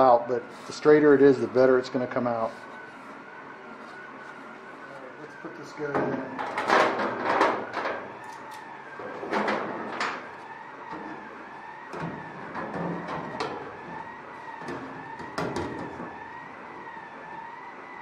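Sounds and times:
distant siren wailing: 0.0s - 18.0s.

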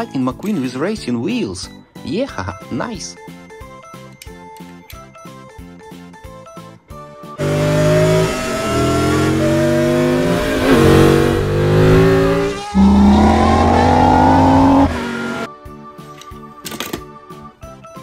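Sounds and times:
light music: 0.0s - 18.0s
race car engine accelerating: 7.4s - 15.5s.

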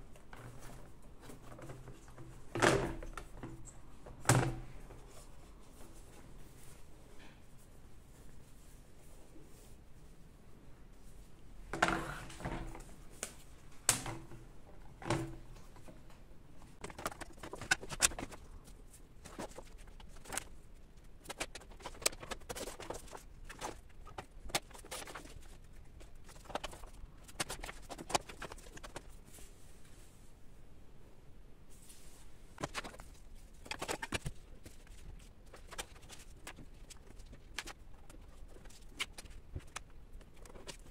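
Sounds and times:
paper rustling: 16.6s - 30.1s, 31.7s - 40.9s.

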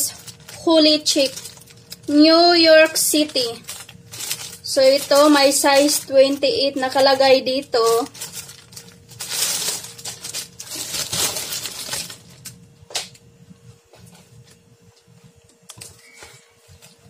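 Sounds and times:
plastic bag crinkling: 0.0s - 12.6s.

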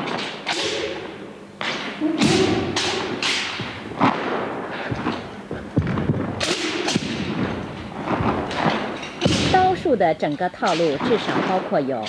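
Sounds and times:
feet stamping on carpeted floor: 3.6s - 6.4s.

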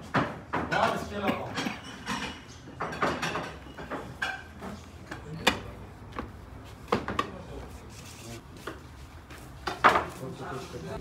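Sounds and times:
tableware knocking and clinking: 0.0s - 4.8s, 9.6s - 10.1s.

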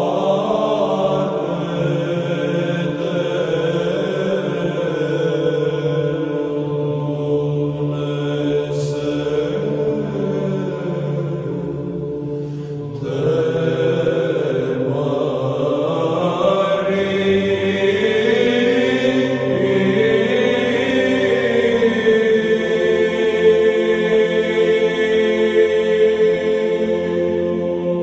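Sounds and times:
steady low drone: 0.0s - 28.0s
voices chanting slow hymn: 0.0s - 28.0s.

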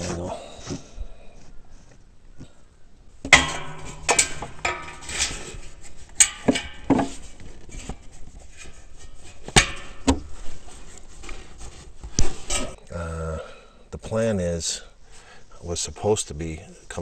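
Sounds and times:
rubber rubbing and scuffing: 0.0s - 1.0s, 7.0s - 12.8s.

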